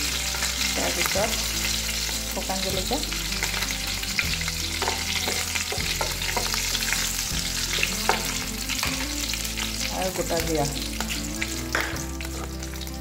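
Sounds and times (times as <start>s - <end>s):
hot oil sizzling and crackling: 0.0s - 13.0s
wooden spatula knocking pan: 4.8s - 6.6s.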